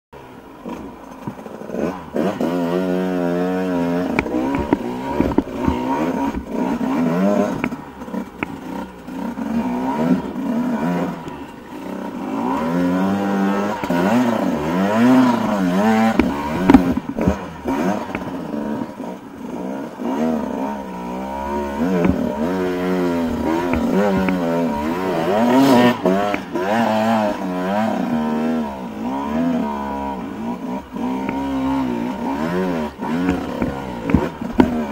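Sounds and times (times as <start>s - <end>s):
dirt bike engine revving: 0.2s - 34.9s
bike striking rocks: 4.0s - 9.0s, 12.4s - 18.6s, 21.5s - 27.2s, 31.2s - 34.9s.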